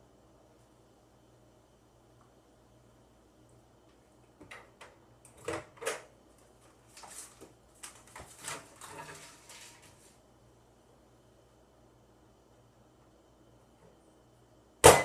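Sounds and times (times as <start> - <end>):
objects rustling and clattering: 5.4 - 10.2.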